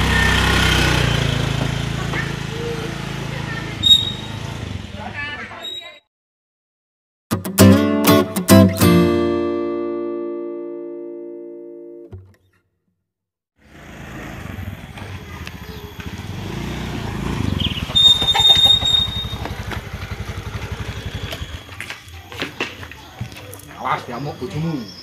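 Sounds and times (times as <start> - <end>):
motor scooter engine running: 0.0 - 5.1, 13.6 - 23.4
high-pitched squeal: 3.8 - 4.4, 14.6 - 21.8
guitar chord ringing: 7.3 - 12.2.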